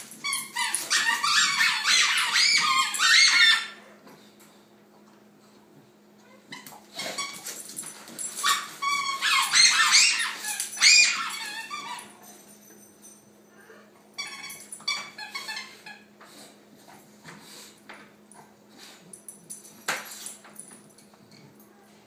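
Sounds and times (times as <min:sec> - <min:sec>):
dogs yipping and whining: 0:00.0 - 0:04.0, 0:06.2 - 0:17.7.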